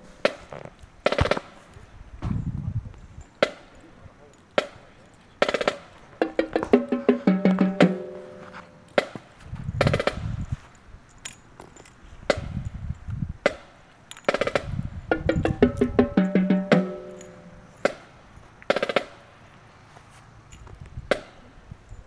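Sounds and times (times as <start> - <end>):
drum rolls: 5.4 - 9.2, 14.3 - 18.0
sharp drum hits: 6.2 - 8.5, 15.1 - 17.6.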